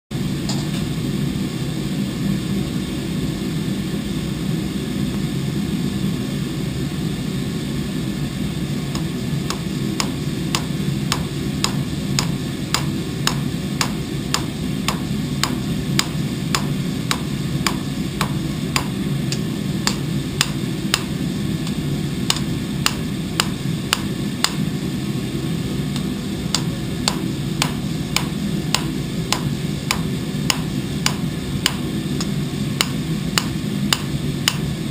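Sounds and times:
steady low drone: 0.2s - 34.9s
hammer striking metal on anvil: 9.0s - 19.0s, 19.8s - 24.6s, 26.0s - 34.6s.

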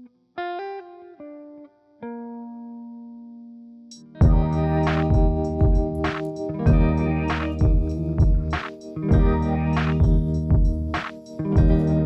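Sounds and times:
plucked guitar chord: 4.2s - 12.0s.

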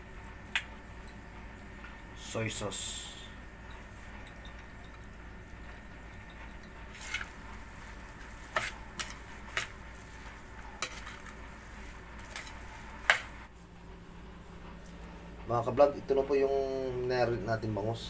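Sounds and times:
spoon scraping metal bowl: 6.2s - 10.1s, 10.8s - 13.3s.

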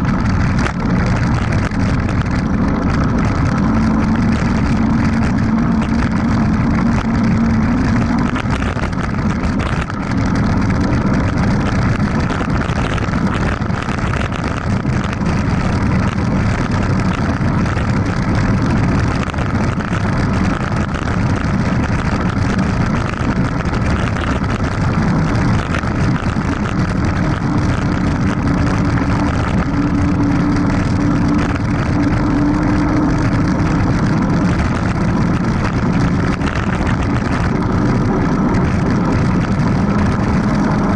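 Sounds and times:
bike tyres rolling on dirt: 0.0s - 40.9s
low hum: 0.0s - 40.9s
wind rushing over microphone: 0.0s - 40.9s.

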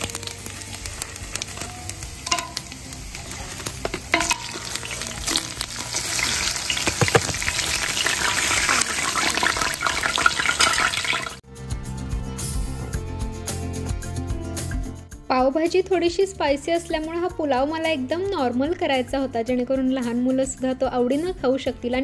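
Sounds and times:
food sizzling in hot oil: 0.0s - 11.4s
spoon knocking against pot: 2.3s - 2.7s, 3.8s - 4.6s, 6.8s - 7.6s.

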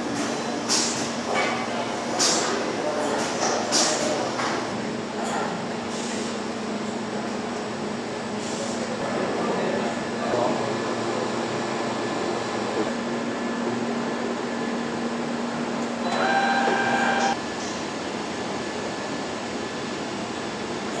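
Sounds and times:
factory machinery humming: 0.0s - 21.0s
pitched machine whine: 16.0s - 17.4s.

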